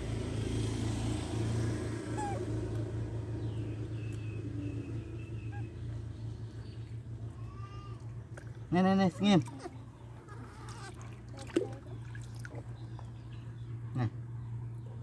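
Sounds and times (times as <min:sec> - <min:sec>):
high-pitched animal squeaks: 0:02.1 - 0:02.5, 0:09.5 - 0:11.0.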